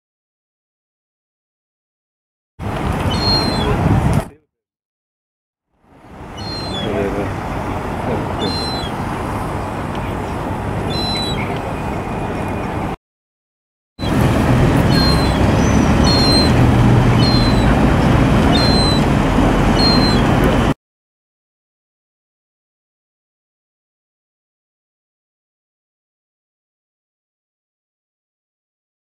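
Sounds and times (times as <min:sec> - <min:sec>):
young gull begging whistles: 0:03.1 - 0:03.8, 0:06.4 - 0:07.0, 0:08.4 - 0:09.0, 0:10.9 - 0:11.6, 0:14.9 - 0:17.8, 0:18.5 - 0:19.1, 0:19.8 - 0:20.4
low background rumble: 0:14.0 - 0:20.8.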